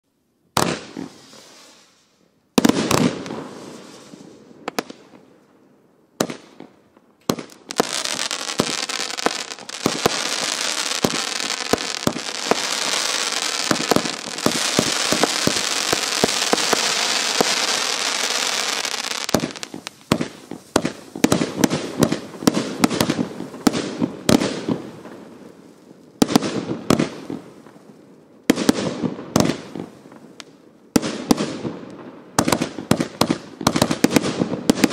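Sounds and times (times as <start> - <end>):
sharp firework cracks: 0.6 - 1.9, 2.6 - 5.2, 6.2 - 25.2, 28.5 - 34.9
firework bursts: 0.6 - 5.2, 6.2 - 27.7
hissing crackle: 7.4 - 23.8.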